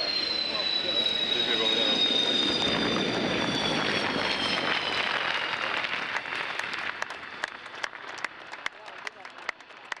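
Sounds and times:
jet engines winding down: 0.0s - 10.0s
people clapping: 5.0s - 10.0s.

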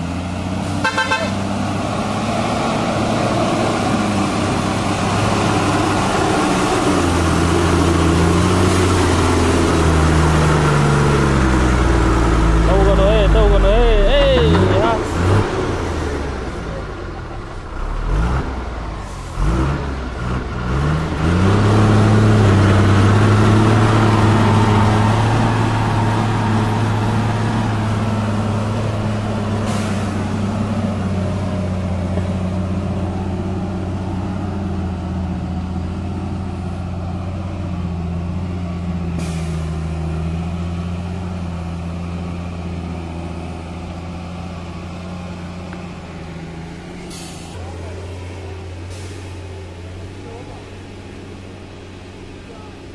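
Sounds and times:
truck diesel engine under load: 0.0s - 52.9s.

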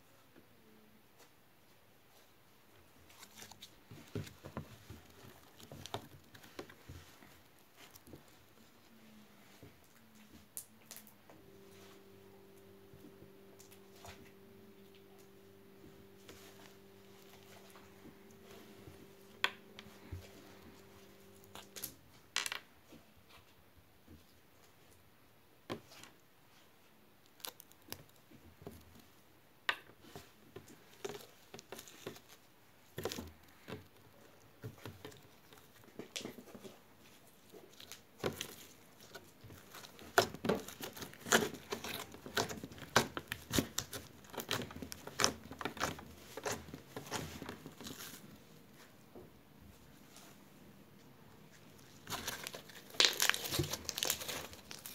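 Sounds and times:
steady low hum: 10.7s - 22.1s.

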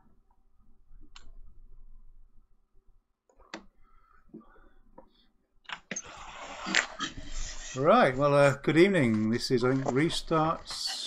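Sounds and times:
rasping rubbing noise: 6.0s - 11.0s.

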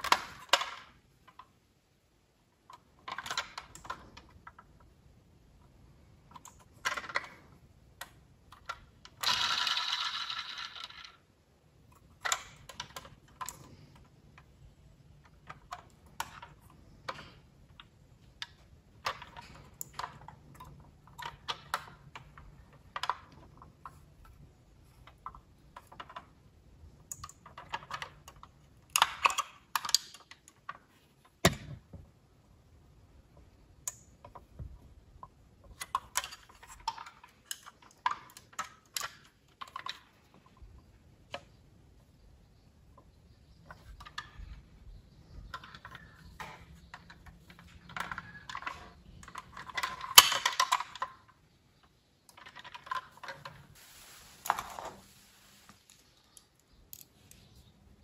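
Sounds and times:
handling noise of metal toy car: 0.0s - 1.6s, 2.7s - 5.0s, 6.3s - 14.6s, 15.2s - 31.9s, 33.9s - 41.6s, 45.3s - 53.8s.

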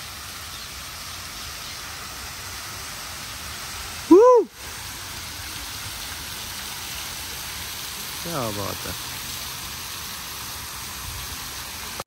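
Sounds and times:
fountain water splashing: 0.0s - 12.0s
short loud call: 4.1s - 4.5s.

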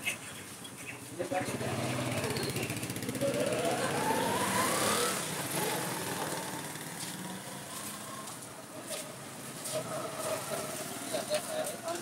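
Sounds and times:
motorbike engine rising in pitch: 1.5s - 8.4s.

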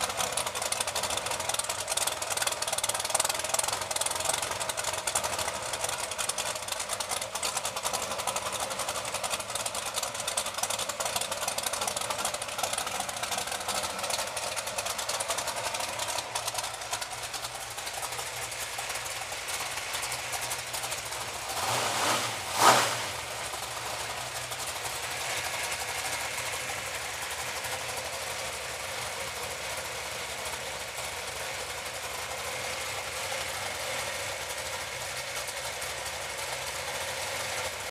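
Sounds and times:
engine sharp burst: 0.0s - 29.5s
car engine idling: 0.0s - 37.9s.

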